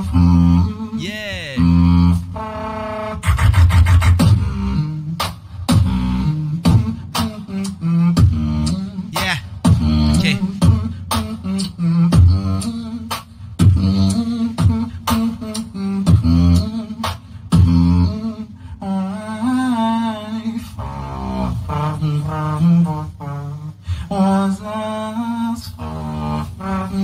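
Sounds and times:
beatboxing into a microphone: 0.0s - 27.0s.

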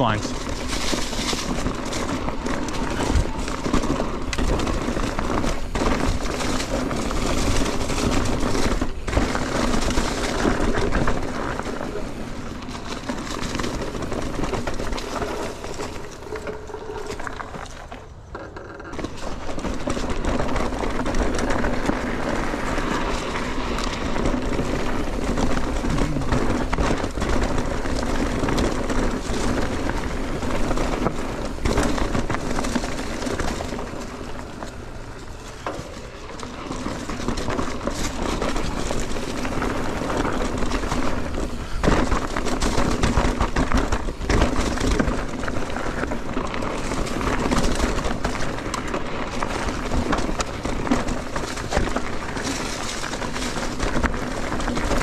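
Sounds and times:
bike clattering over rocks: 0.0s - 55.0s
tyre and wind noise: 0.0s - 55.0s.

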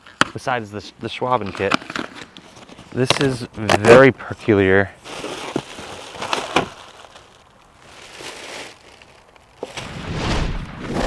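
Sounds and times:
cardboard packaging rustling: 1.3s - 4.1s, 5.0s - 9.8s.

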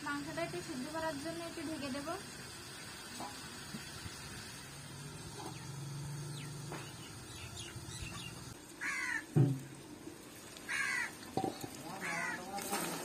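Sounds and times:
crow cawing: 8.8s - 9.4s, 10.7s - 11.2s, 11.8s - 12.6s.

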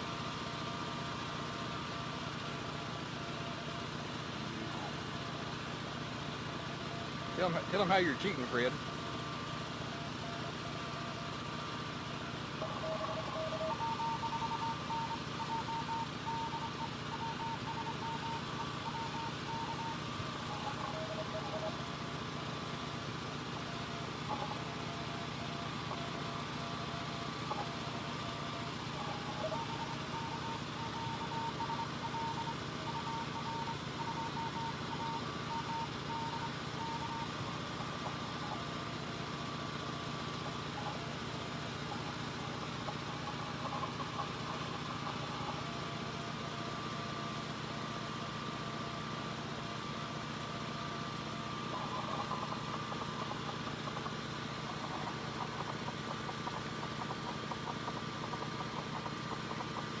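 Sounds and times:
morse code beeps: 12.6s - 22.4s, 23.5s - 38.7s, 40.4s - 45.9s, 51.3s - 60.0s.

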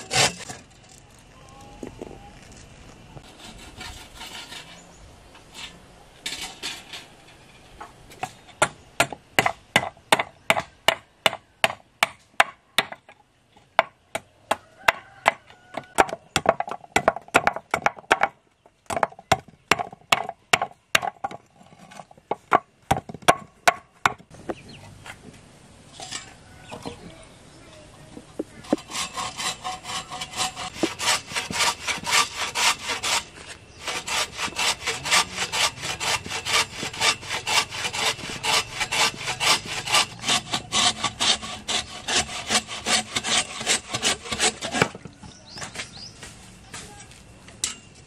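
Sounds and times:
machete scraping strokes: 0.0s - 1.1s, 3.2s - 7.8s, 28.6s - 45.0s.

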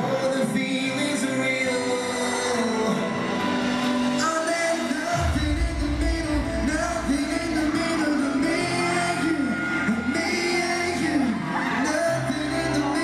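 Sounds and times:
man singing with band: 0.0s - 13.0s
deep bass: 5.2s - 8.7s.

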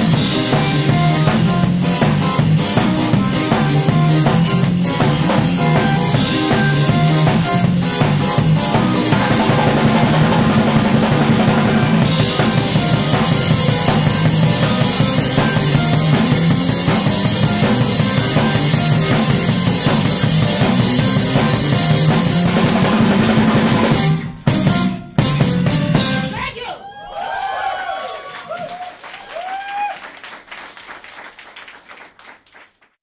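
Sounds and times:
electric bass guitar: 0.0s - 26.3s
drum kit playing: 0.0s - 26.6s.

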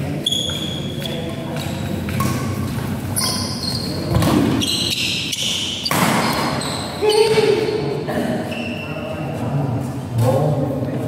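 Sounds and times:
shoes squeaking on court: 0.1s - 7.8s, 8.5s - 9.3s
rackets hitting shuttlecock: 4.1s - 7.5s.

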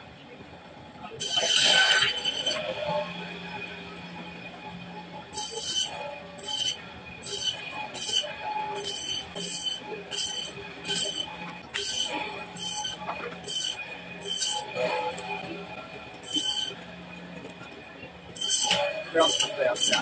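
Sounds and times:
saw blade screeching through fish: 1.2s - 2.6s, 5.4s - 14.8s, 16.2s - 16.8s, 18.4s - 20.0s
band saw humming and whining: 1.2s - 20.0s.

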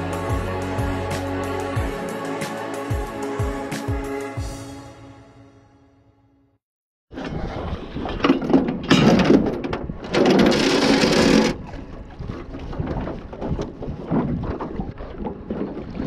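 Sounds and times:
water sounds: 9.9s - 16.0s.

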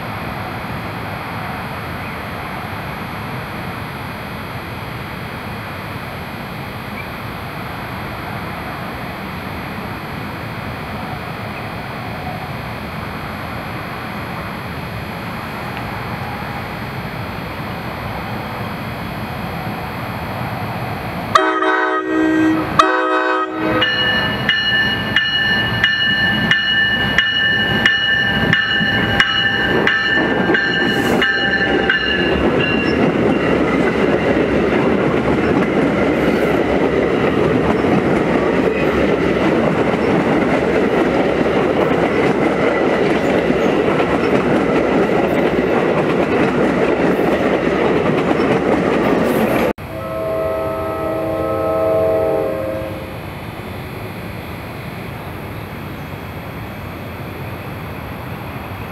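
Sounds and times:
train wheels on rails: 0.0s - 58.9s
train horn blasts: 21.3s - 24.4s, 49.8s - 53.3s
train bell ringing: 23.6s - 34.5s.

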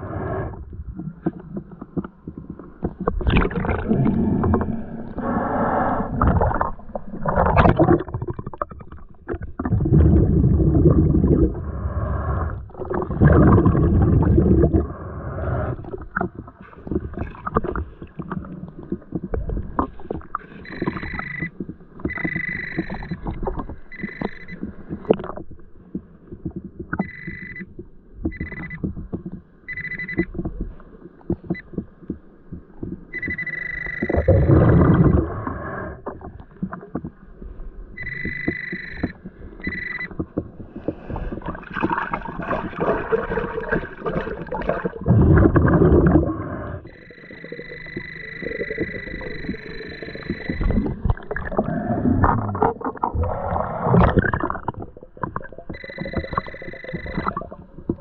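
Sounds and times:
muffled underwater water rumbling: 0.0s - 58.0s
metal detector beeps: 20.5s - 23.2s, 23.8s - 24.7s, 27.0s - 27.7s, 28.3s - 28.9s, 29.7s - 30.3s, 33.1s - 35.3s, 38.0s - 40.2s, 46.9s - 51.1s, 55.7s - 57.5s.

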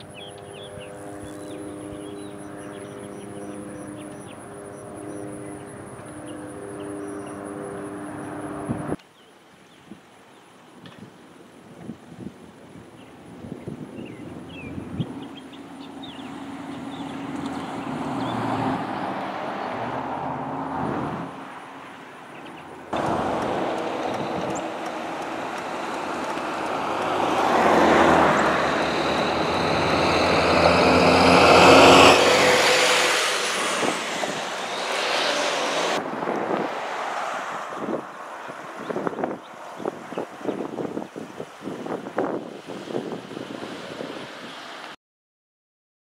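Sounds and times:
cars driving past on highway: 0.0s - 9.0s, 15.2s - 41.0s
police cars passing: 0.0s - 9.0s, 15.6s - 40.5s.

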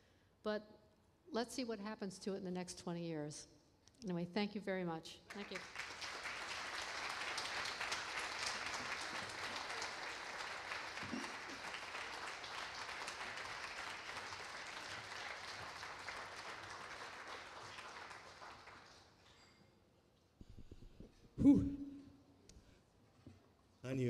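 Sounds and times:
audience applauding: 5.3s - 19.4s.

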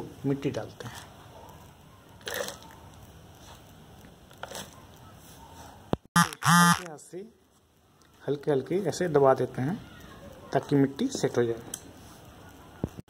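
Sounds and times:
loud pitched cry: 6.2s - 6.9s.

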